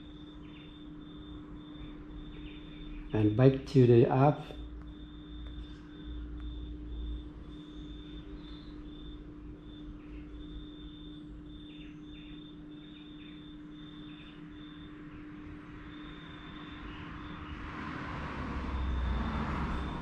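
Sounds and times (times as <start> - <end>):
steady low hum: 0.0 - 20.0
vehicle passing: 15.7 - 20.0.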